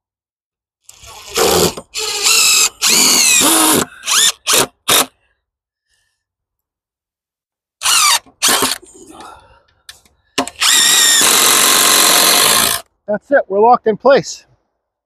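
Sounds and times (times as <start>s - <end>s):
cordless drill driving screws: 0.9s - 5.1s, 7.8s - 8.8s, 10.4s - 12.9s.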